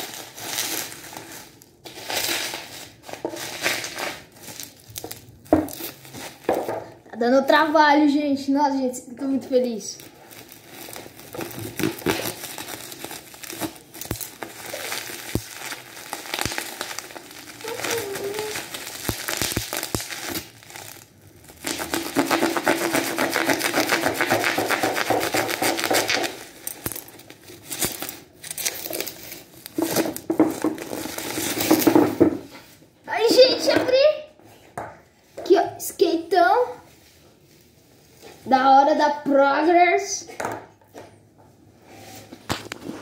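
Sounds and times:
plastic packaging crinkling: 0:00.0 - 0:07.0, 0:09.9 - 0:32.8.

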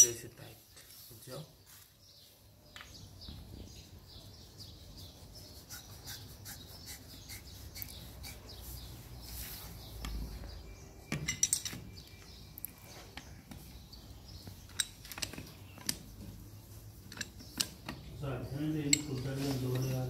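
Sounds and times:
birds chirping: 0:00.0 - 0:20.0
clicks and clinks of metal valve: 0:18.8 - 0:19.3.

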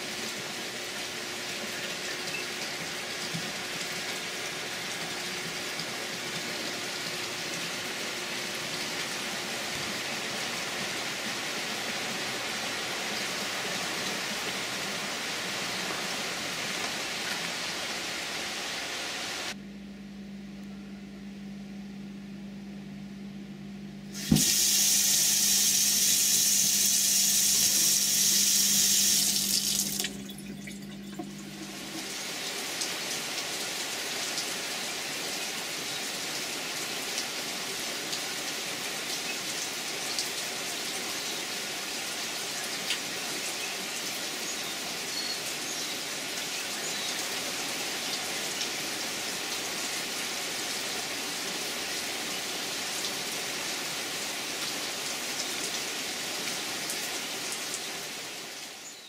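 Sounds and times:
steady rain: 0:00.0 - 0:19.6, 0:24.2 - 0:30.4, 0:31.2 - 0:59.0
low steady hum: 0:19.5 - 0:24.3, 0:27.7 - 0:32.2
faucet running into metal sink: 0:24.2 - 0:32.1.

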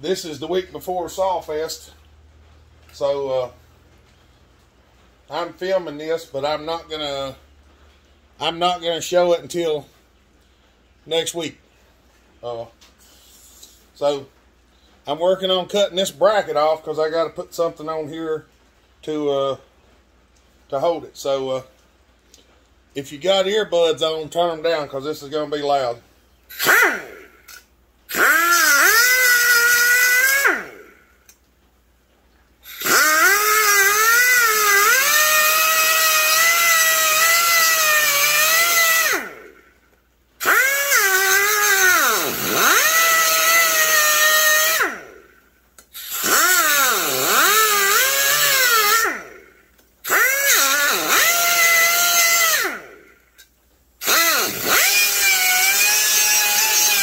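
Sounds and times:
cutoff wheel cutting metal: 0:26.5 - 0:31.0, 0:32.6 - 0:39.6, 0:40.4 - 0:45.3, 0:45.9 - 0:53.1, 0:54.0 - 0:57.0.

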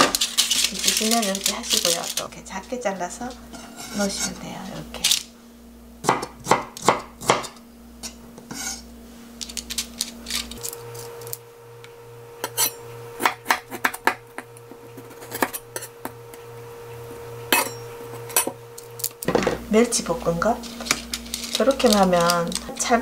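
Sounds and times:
faint steady hum: 0:00.0 - 0:23.0
knife chopping on wooden board: 0:06.0 - 0:07.6.

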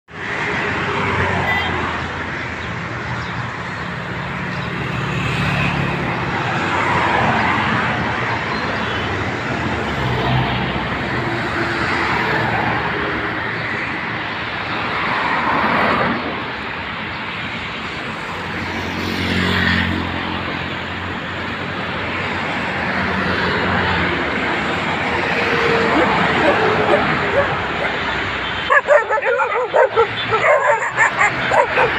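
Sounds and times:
passing vehicles: 0:00.1 - 0:31.9
engine hum: 0:23.2 - 0:31.9.

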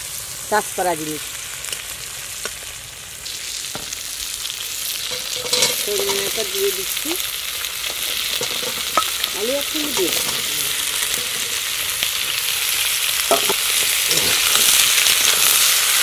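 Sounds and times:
food sizzling in hot oil: 0:00.0 - 0:16.0
metal spatula scraping pan: 0:05.1 - 0:06.4, 0:07.9 - 0:11.7.

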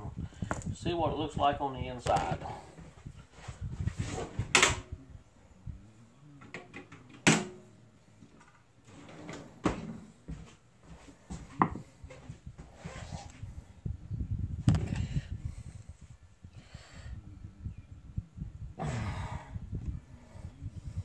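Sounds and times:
tools knocking and clunking: 0:11.6 - 0:11.9.

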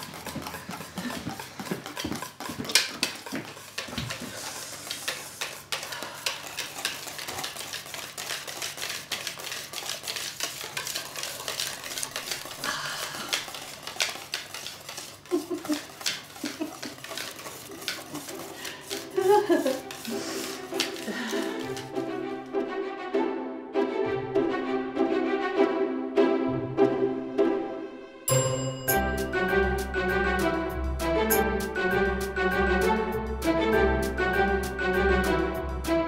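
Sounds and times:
utensil beating in metal bowl: 0:00.0 - 0:22.3.

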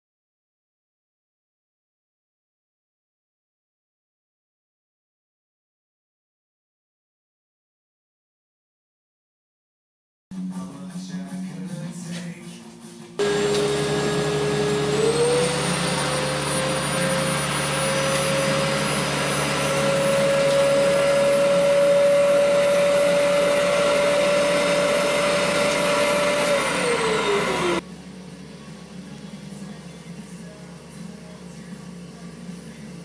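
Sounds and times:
vacuum motor whining: 0:13.2 - 0:30.0.

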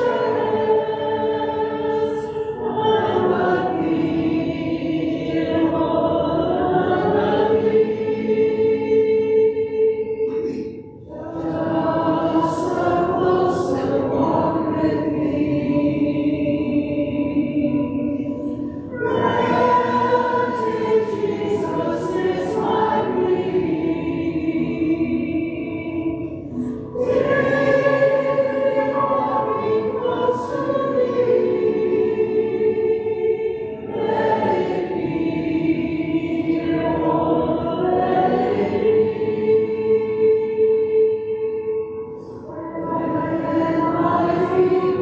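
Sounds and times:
group singing a hymn: 0:00.0 - 0:45.0.

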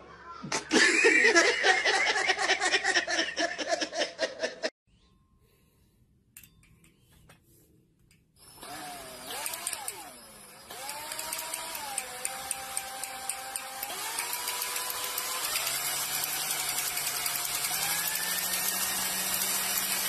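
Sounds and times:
electric drill motor whine: 0:08.4 - 0:20.0.

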